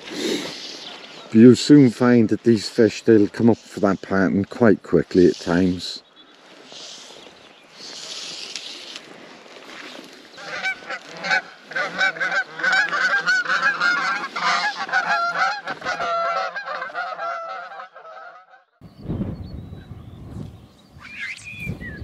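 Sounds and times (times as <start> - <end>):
geese honking: 10.4 - 18.7
wind on microphone: 18.8 - 22.0.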